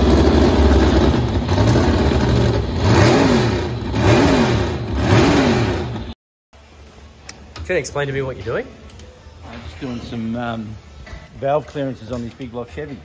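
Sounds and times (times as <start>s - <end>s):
boat engine revving: 0.0s - 6.2s.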